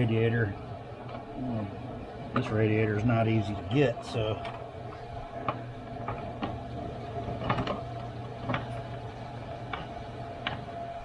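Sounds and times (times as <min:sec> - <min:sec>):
steady low hum: 0:00.0 - 0:11.0
plastic parts clicking and knocking: 0:07.2 - 0:09.0.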